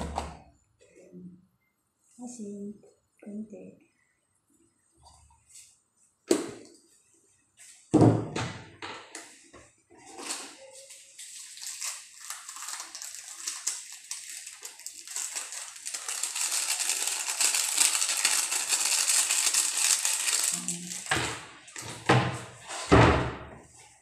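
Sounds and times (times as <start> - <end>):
crackling rustling hiss: 10.8 - 21.1.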